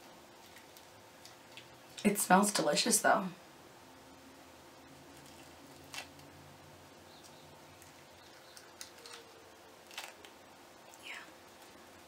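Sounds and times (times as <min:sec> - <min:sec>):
faint steady hum: 0:00.0 - 0:12.0
peel-off mask crackling: 0:00.3 - 0:02.1, 0:05.0 - 0:06.4, 0:07.0 - 0:12.0.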